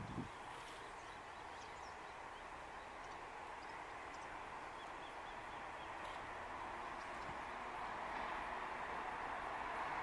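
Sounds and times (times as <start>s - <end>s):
faint bird chirps: 0.1s - 6.2s.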